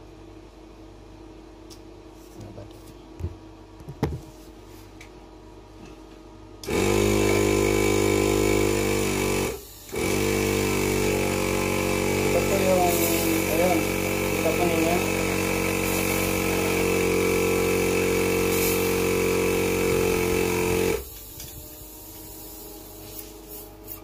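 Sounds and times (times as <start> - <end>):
electric air compressor running: 6.6 - 24.0.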